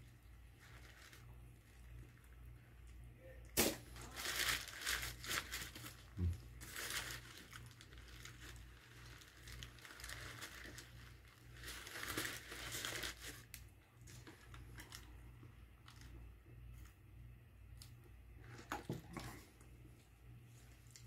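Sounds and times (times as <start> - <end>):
paper wrapper crinkling: 0.1 - 2.4, 3.6 - 16.2.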